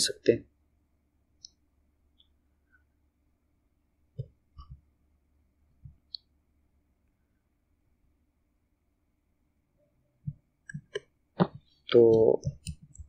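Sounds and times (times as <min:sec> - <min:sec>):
computer mouse clicks: 0:12.4 - 0:13.0.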